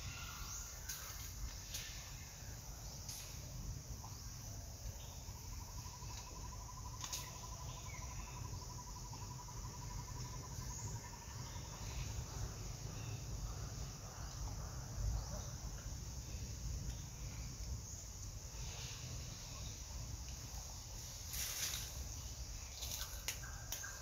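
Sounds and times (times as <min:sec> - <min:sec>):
high insect drone: 0:00.0 - 0:24.0.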